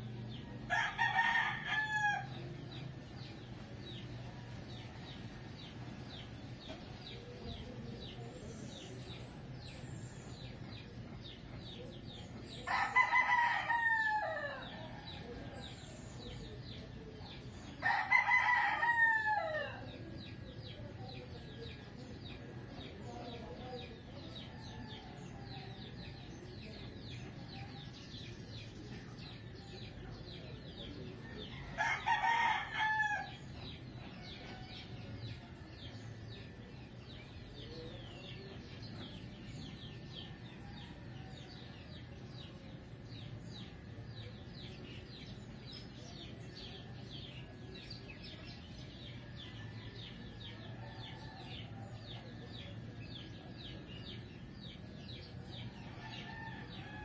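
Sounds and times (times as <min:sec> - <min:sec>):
rooster crowing: 0:00.7 - 0:02.3, 0:12.7 - 0:15.2, 0:17.8 - 0:19.8, 0:31.6 - 0:33.4, 0:55.9 - 0:57.0.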